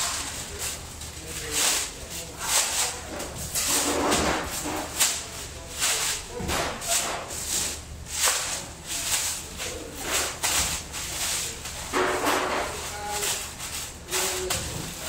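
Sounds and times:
plastic sheet rustling and crinkling: 0.0s - 15.0s.

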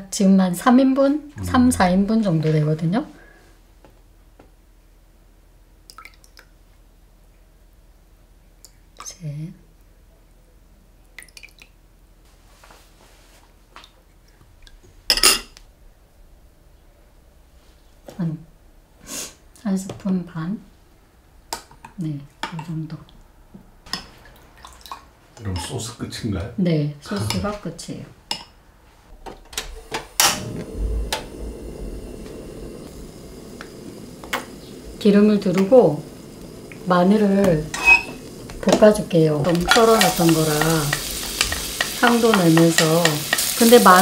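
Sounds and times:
gas stove burner rush: 29.5s - 44.0s.

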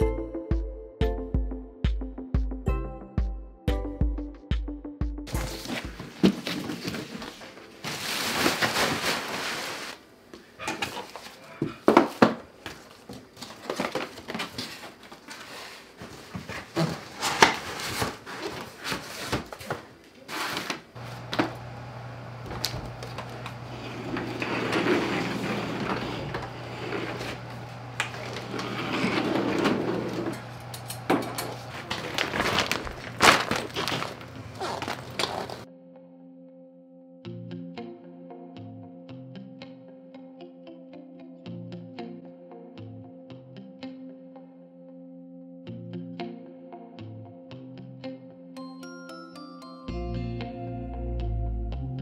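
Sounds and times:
plastic and bags rustling: 5.4s - 10.0s, 12.1s - 21.7s, 22.5s - 35.7s
steady low hum: 21.0s - 33.4s.

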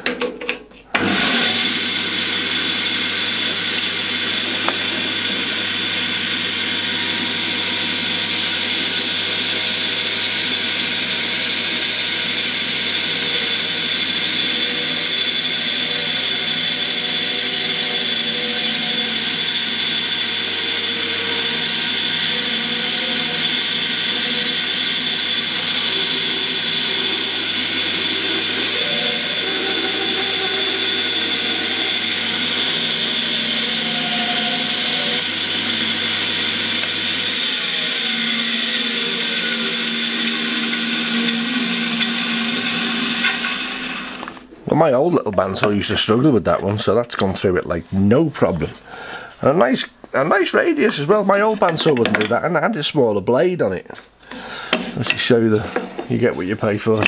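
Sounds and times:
bandsaw cutting wood: 1.0s - 44.6s.

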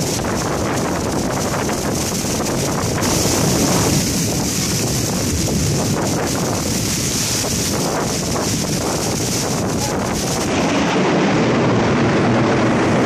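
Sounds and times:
heavy rain pouring: 0.0s - 13.0s
wind buffeting microphone: 0.0s - 13.0s.

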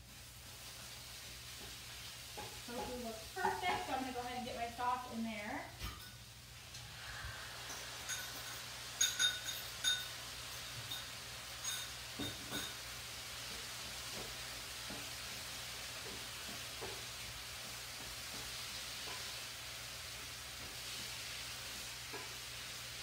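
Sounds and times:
tofu sizzling in a skillet: 0.0s - 23.0s.

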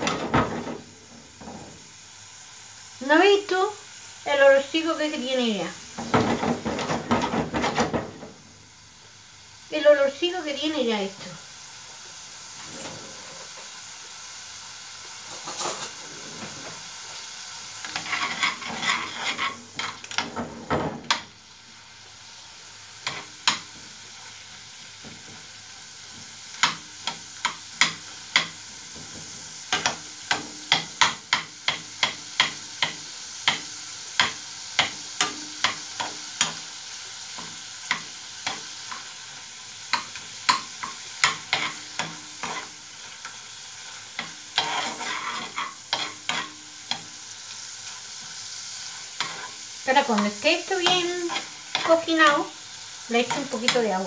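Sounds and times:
food sizzling in oil: 0.0s - 54.0s
spoon knocking against a pan: 26.6s - 36.6s.

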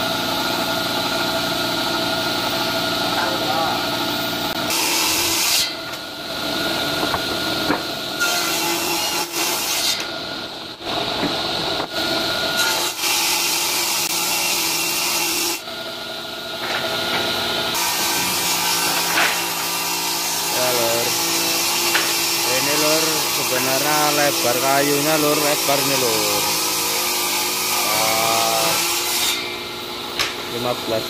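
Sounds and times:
electric motor hum: 0.0s - 8.2s, 15.3s - 31.0s
table saw cutting wood: 0.0s - 31.0s.

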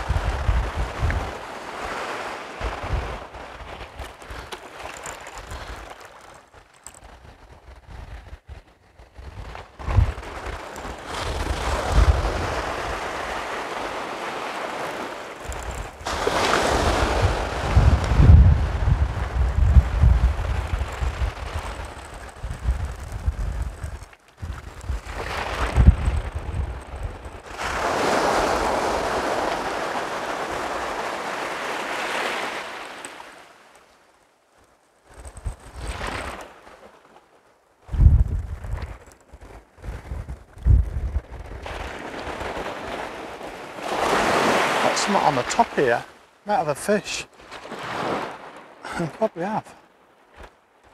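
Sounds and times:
small waves breaking: 0.0s - 7.7s, 8.3s - 37.9s, 41.3s - 50.9s
wind buffeting microphone: 0.0s - 31.7s, 37.8s - 44.9s
surf washing on pebble beach: 0.0s - 34.1s, 38.1s - 50.9s.

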